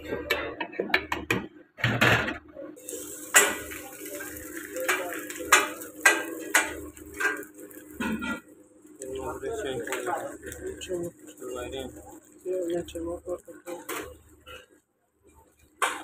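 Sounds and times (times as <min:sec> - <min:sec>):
tea pouring hiss: 0:02.8 - 0:06.2.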